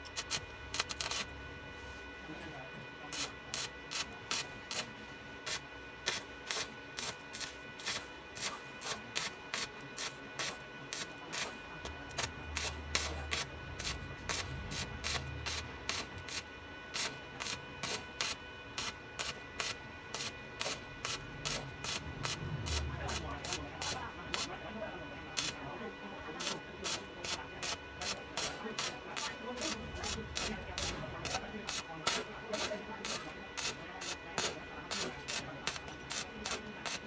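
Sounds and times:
deep bass notes: 22.0s - 23.3s.

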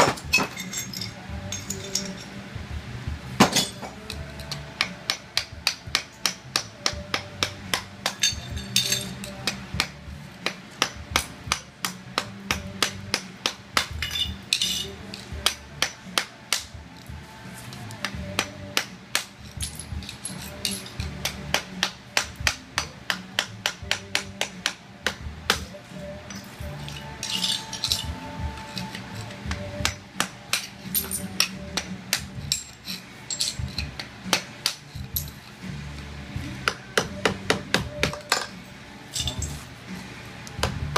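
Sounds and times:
hammer tapping a chisel on tile: 36.6s - 38.6s.

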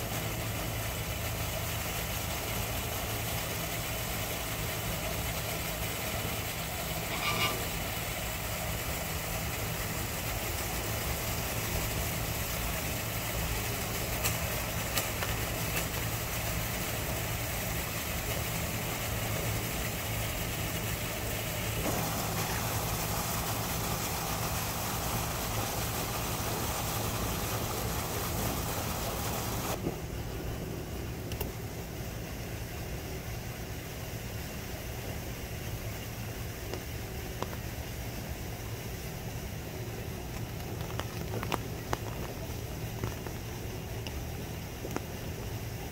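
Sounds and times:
even hiss: 0.0s - 45.9s
low mechanical hum: 0.0s - 45.9s.

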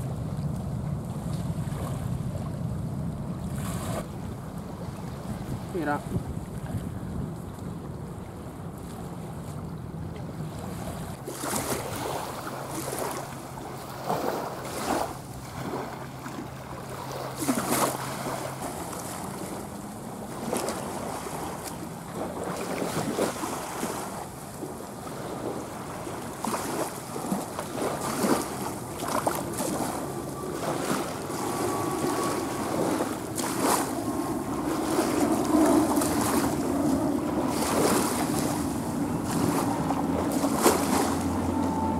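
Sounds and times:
wind buffeting microphone: 0.0s - 41.9s
jet engine roar: 28.5s - 41.9s.

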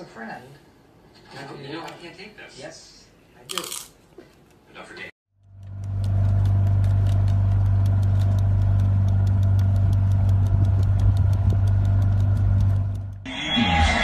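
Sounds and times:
fast regular ticking: 5.4s - 13.3s
motorboat engine humming: 5.4s - 13.3s.

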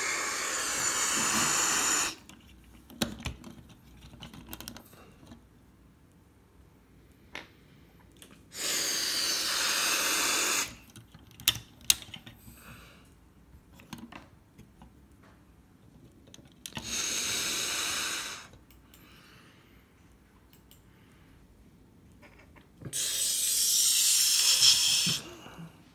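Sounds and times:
hissing bursts: 0.0s - 2.2s, 8.5s - 10.8s, 16.8s - 18.5s, 22.9s - 25.3s.

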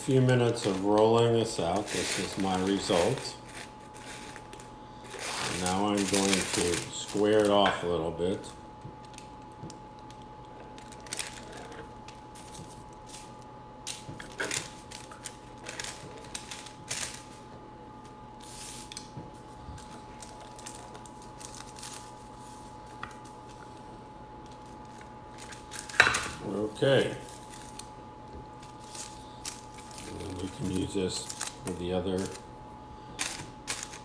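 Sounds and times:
dough scraps peeled off paper: 0.1s - 8.0s, 10.0s - 17.4s, 18.4s - 23.6s, 24.4s - 27.9s, 28.5s - 32.4s, 33.1s - 34.0s
pizza cutter scraping dough: 1.6s - 4.4s.

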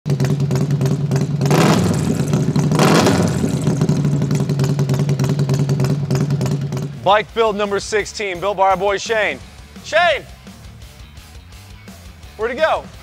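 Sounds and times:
motorcycle engine idling: 0.1s - 12.3s.

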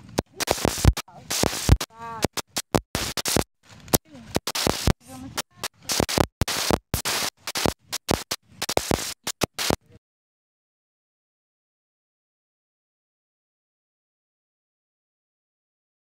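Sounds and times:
snatches of voices: 0.0s - 10.0s.

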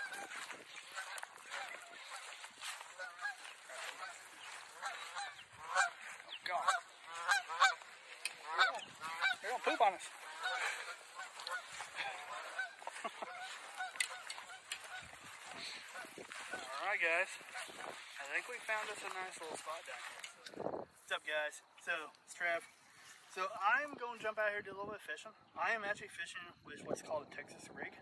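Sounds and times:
geese honking in flight: 0.0s - 20.3s.

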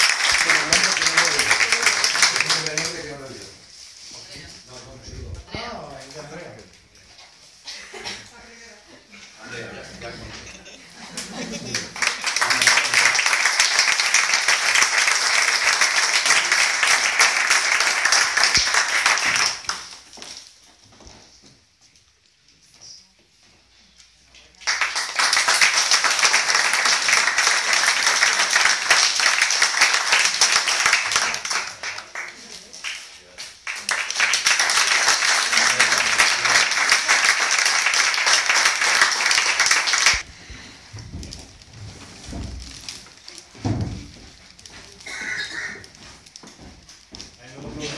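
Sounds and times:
small audience applauding: 0.0s - 3.6s, 11.0s - 20.4s, 24.6s - 40.3s.

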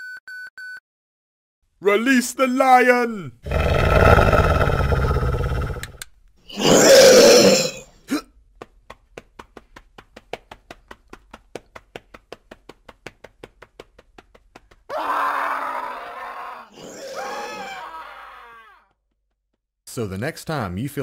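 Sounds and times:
wailing cry: 6.5s - 7.8s, 14.9s - 18.8s
running footsteps: 8.5s - 14.9s
person crying out: 14.9s - 18.8s.

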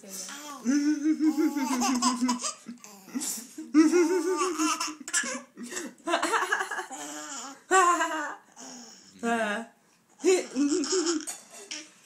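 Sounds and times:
baby laughing: 0.6s - 3.2s, 3.8s - 5.8s, 10.3s - 11.9s.

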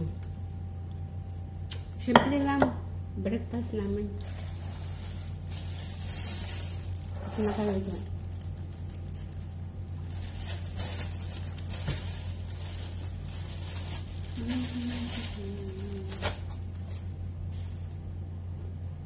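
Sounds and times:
steady low hum: 0.0s - 19.0s
plastic bag crinkling: 4.1s - 18.1s.

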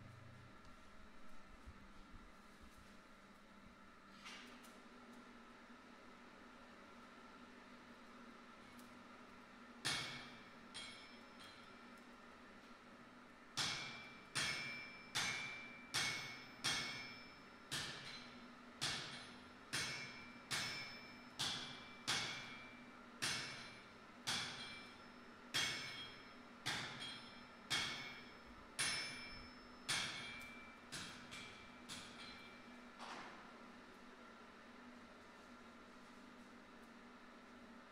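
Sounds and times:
hammer striking metal on anvil: 9.8s - 11.7s, 13.6s - 32.8s.

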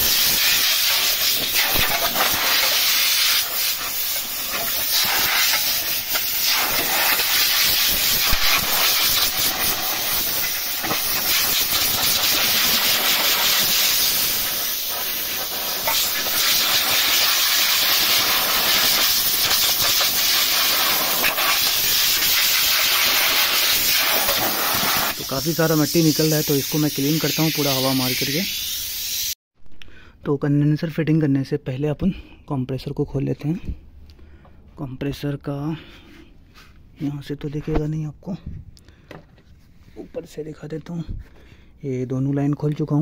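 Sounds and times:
compressed air blow gun hissing: 0.0s - 29.4s.

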